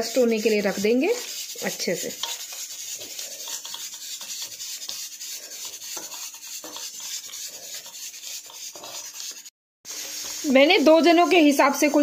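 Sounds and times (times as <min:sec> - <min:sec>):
hands kneading dough in metal bowl: 0:00.0 - 0:09.5.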